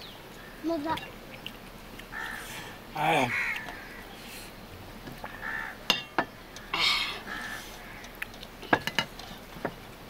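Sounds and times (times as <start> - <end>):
crows cawing: 2.1 - 4.2, 5.2 - 8.2
dishware clinking: 5.9 - 6.3.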